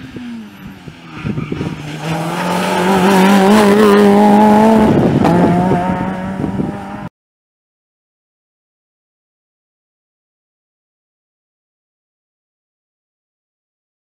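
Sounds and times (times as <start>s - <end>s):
rally car engine at high revs: 0.0s - 7.1s.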